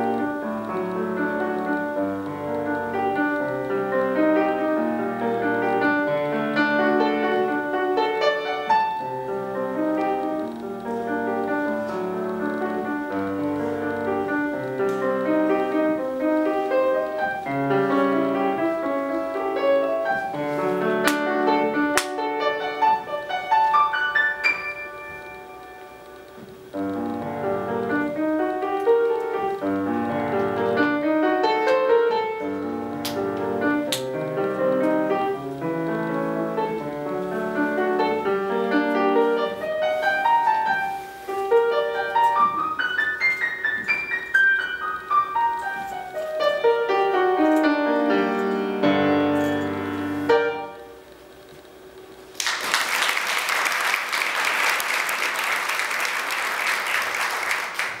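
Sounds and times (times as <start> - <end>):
solo grand piano: 0.0 - 58.0
audience applause: 52.3 - 58.0.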